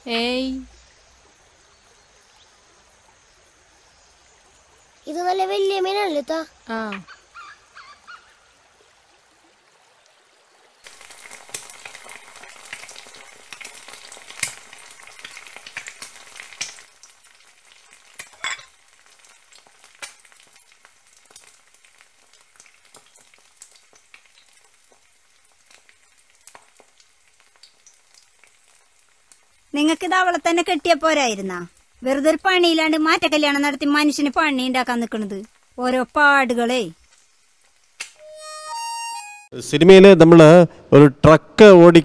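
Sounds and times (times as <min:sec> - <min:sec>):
food sizzling in a pan: 0:10.8 - 0:39.2.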